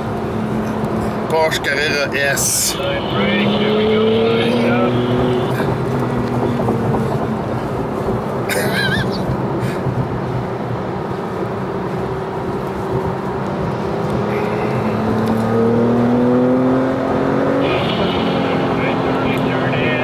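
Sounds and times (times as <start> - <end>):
car engine under load: 0.0 - 20.0
high warbling squeal: 17.6 - 19.1.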